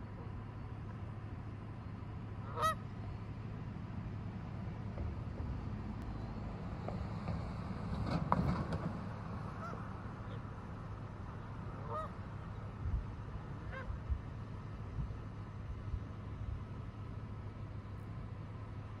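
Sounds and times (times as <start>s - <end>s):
steady low rumble: 0.0s - 19.0s
geese honking: 2.4s - 3.0s, 9.5s - 10.5s, 11.6s - 12.8s, 13.5s - 14.0s.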